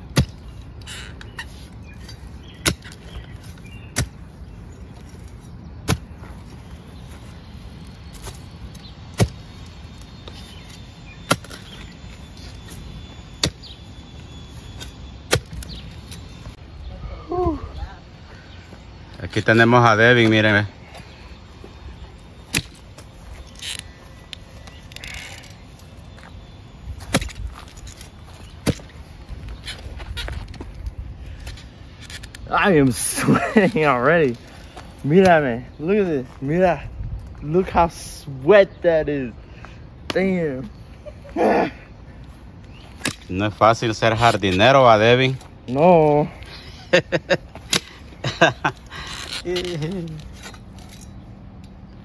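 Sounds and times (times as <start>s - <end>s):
digging tool striking ground: 0.0s - 4.3s, 4.9s - 6.6s, 7.8s - 16.3s, 22.4s - 26.3s, 27.0s - 29.0s, 42.7s - 44.9s, 47.5s - 48.5s
earth scraping and rustling: 0.0s - 16.8s, 18.6s - 38.4s, 42.2s - 51.3s.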